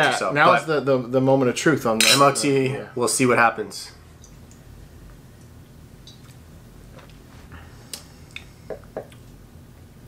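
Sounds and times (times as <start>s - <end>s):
quiet room hum: 0.0s - 10.0s
small clicks and smacks: 5.4s - 6.4s.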